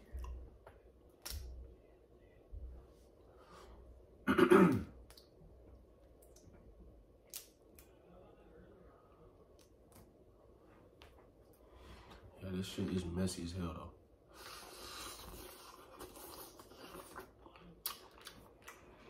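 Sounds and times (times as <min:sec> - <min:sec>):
man clearing his throat: 0:04.2 - 0:05.0.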